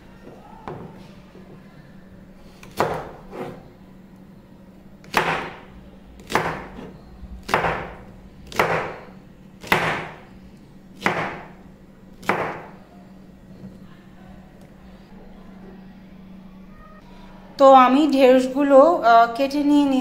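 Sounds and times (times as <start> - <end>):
knife chopping on cutting board: 2.6 - 3.6, 5.0 - 5.6, 6.2 - 9.0, 9.6 - 10.2, 11.0 - 11.5, 12.2 - 12.7.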